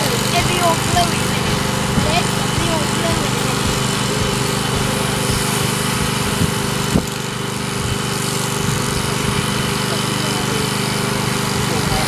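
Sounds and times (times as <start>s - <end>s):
electric shears buzzing: 0.0s - 12.0s.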